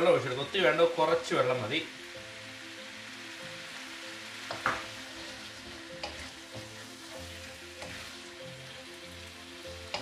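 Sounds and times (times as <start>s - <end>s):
chicken sizzling in a pan: 0.0s - 10.0s
spatula scraping a pan: 4.5s - 8.3s.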